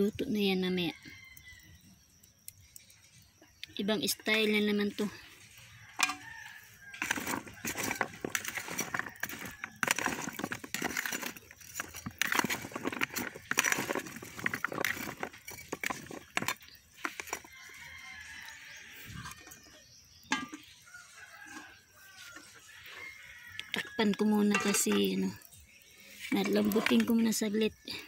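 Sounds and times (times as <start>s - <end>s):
metal spatula scraping a pot: 4.5s - 18.4s, 19.1s - 27.4s.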